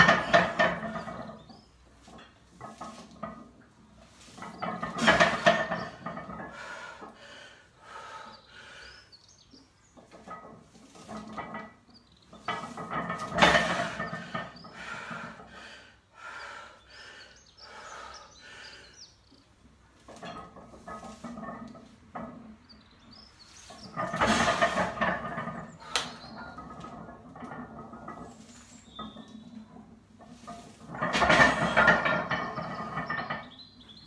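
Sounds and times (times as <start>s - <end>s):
barbell plates clanking on steel: 0.0s - 6.6s, 10.1s - 14.6s, 20.0s - 22.6s, 23.6s - 34.0s.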